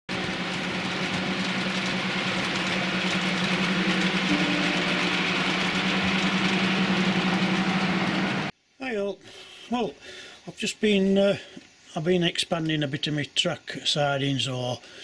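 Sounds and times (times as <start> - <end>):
model train motor hum: 0.1 - 8.5.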